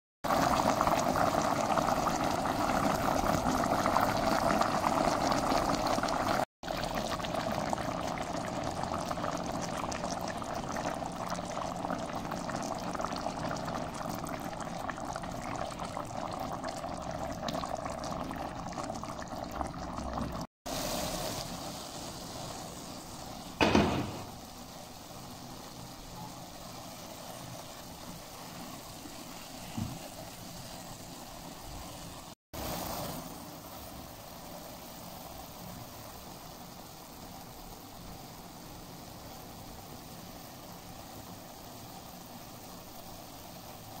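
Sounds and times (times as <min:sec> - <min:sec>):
pot bubbling at a boil: 0:00.2 - 0:44.0
sharp knock: 0:23.6 - 0:24.3.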